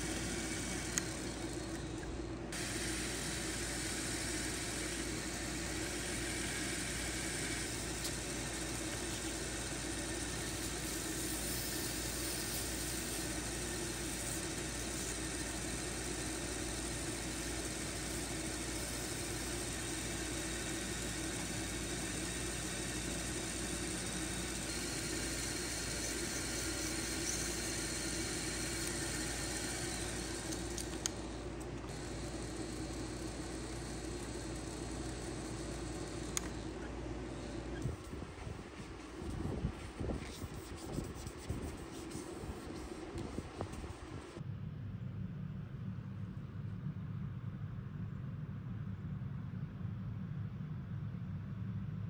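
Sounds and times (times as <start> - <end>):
sandpaper on spinning wood: 0.0 - 2.0, 2.6 - 36.8, 37.4 - 44.3
lathe motor humming: 0.0 - 44.4.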